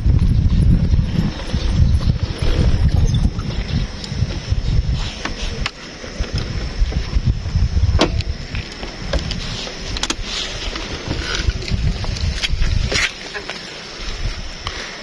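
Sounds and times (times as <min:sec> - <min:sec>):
wind buffeting microphone: 0:00.0 - 0:13.3, 0:13.9 - 0:14.8.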